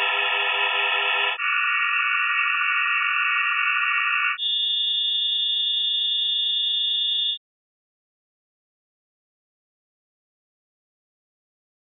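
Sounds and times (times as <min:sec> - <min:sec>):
synthesized sine-wave chords: 0:00.0 - 0:04.5.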